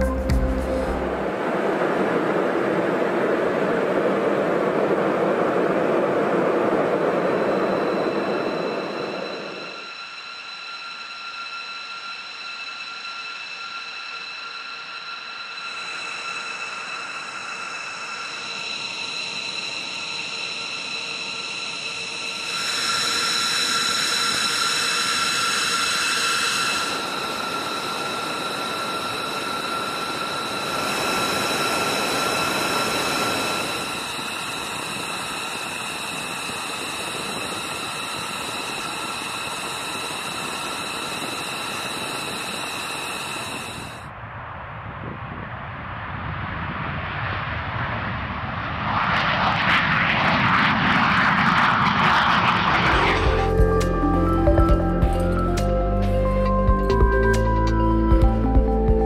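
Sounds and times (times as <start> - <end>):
jet engines whining: 0.7 - 58.6
deep jet rumble: 44.1 - 57.4.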